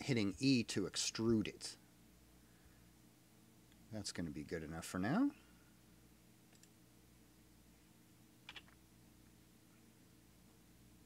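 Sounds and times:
low steady hum: 0.0 - 11.0
computer mouse and key clicks: 6.5 - 6.8, 8.4 - 8.8.

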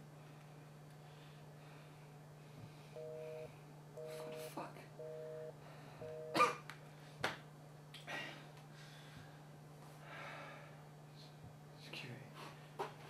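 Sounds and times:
steady low hum: 0.0 - 13.0
quiet breaths: 0.1 - 7.2, 8.0 - 12.8
telephone busy tone: 3.0 - 6.4.

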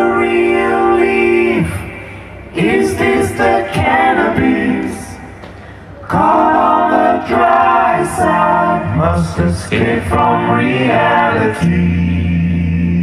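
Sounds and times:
song with sung vocals: 0.0 - 13.0.

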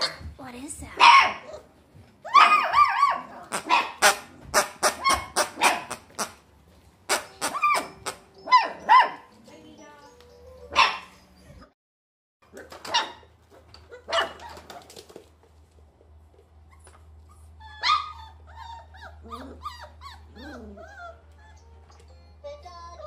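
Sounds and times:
puppies yipping and barking: 1.0 - 6.4, 7.1 - 9.3, 10.6 - 11.7, 12.8 - 15.0, 16.7 - 22.1.

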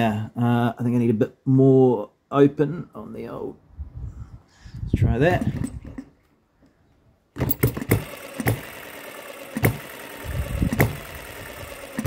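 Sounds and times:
model engine firing bangs: 7.4 - 8.9, 9.5 - 10.0, 10.6 - 12.0.

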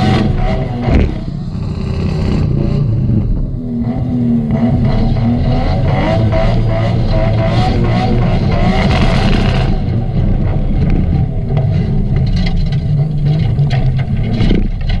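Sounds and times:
car engine running hard: 0.0 - 15.0.

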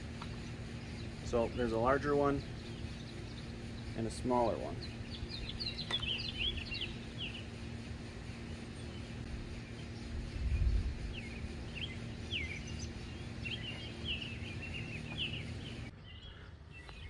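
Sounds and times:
birds chirping: 0.0 - 17.0
steady low hum: 0.0 - 17.0
wind rumbling on microphone: 9.3 - 12.9.

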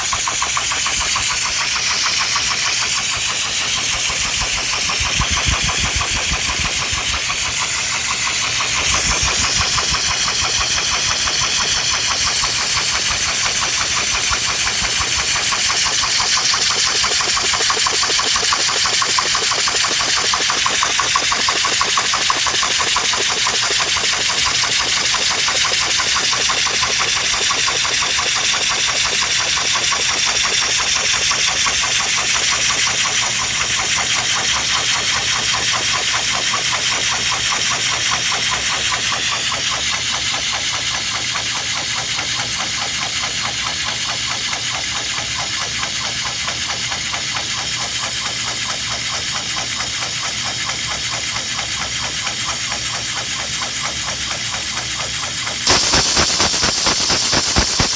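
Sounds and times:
compressed-air engine hissing puffs: 0.0 - 29.1.

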